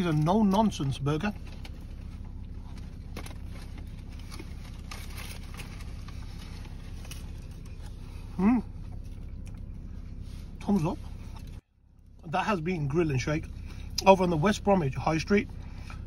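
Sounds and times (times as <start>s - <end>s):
rustles and handling noises: 0.0s - 12.1s
low car cabin rumble: 0.0s - 16.0s
man chewing food: 1.4s - 10.6s
man humming: 8.3s - 8.8s.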